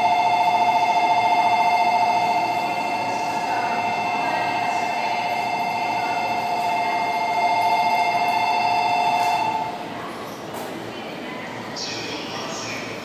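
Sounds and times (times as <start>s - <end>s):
electronic two-tone departure bell: 0.0s - 9.7s.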